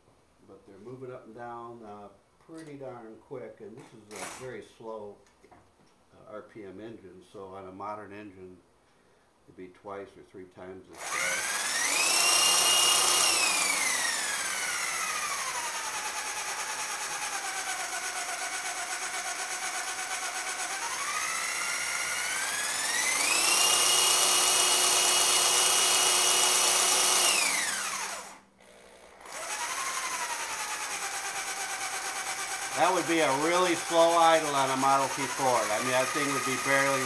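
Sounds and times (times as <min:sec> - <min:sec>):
electric drill whining: 0:04.1 - 0:04.5, 0:11.0 - 0:37.0.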